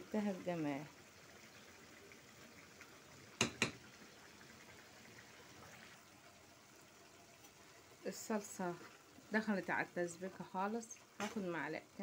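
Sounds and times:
sauce bubbling in pan: 0:00.0 - 0:12.0
sharp knocks: 0:03.4 - 0:03.8.

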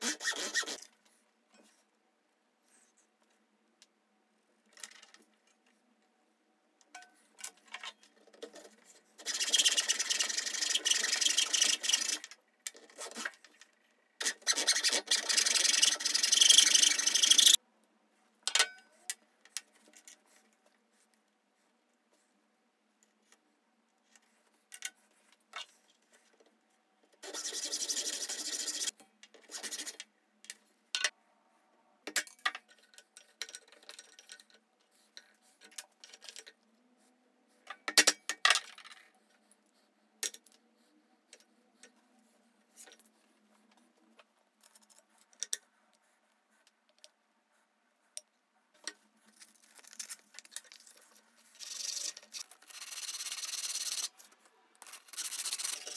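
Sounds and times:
light clicks and taps of tools: 0:06.8 - 0:09.0, 0:23.0 - 0:27.2, 0:32.1 - 0:36.9, 0:37.6 - 0:40.7, 0:41.3 - 0:46.0, 0:46.6 - 0:47.2
sandpaper rubbing wood: 0:27.2 - 0:28.9.

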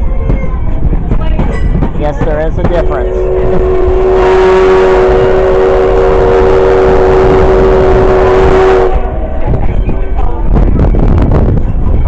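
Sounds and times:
steam locomotive whistle: 0:03.0 - 0:09.4.

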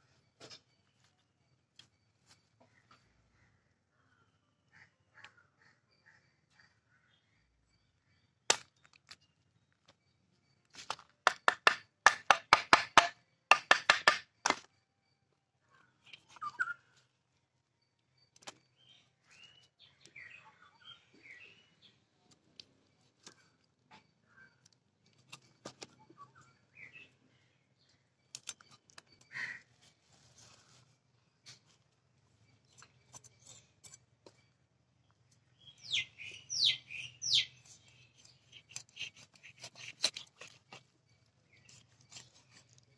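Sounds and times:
faint bird chirps: 0:00.0 - 0:10.9, 0:14.3 - 0:42.9
knife chopping fish on wooden block: 0:11.3 - 0:14.6.

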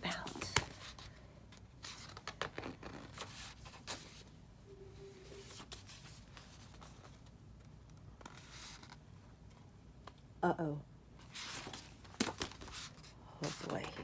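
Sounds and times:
paper rustling: 0:11.2 - 0:14.0.

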